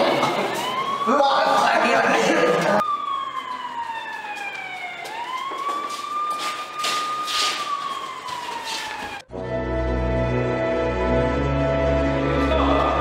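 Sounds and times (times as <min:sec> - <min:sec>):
police siren wailing: 0:00.0 - 0:09.6.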